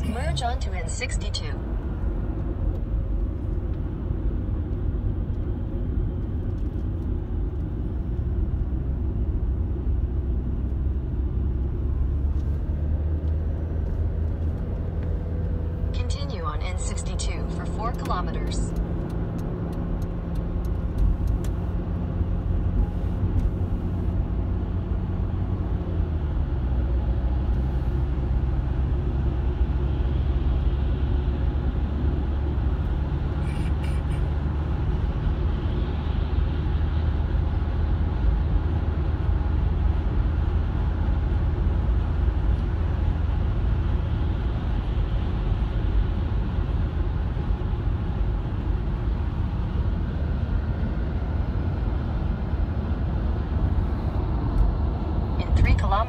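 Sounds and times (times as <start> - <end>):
car engine drone: 0.0 - 56.0
tyre road noise: 0.0 - 56.0.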